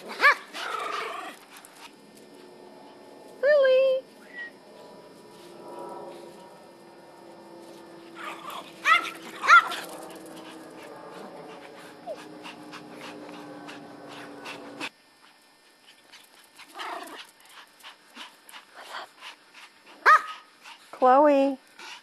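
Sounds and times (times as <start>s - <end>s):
low hum: 0.0s - 20.6s
small dog yipping: 8.2s - 9.8s.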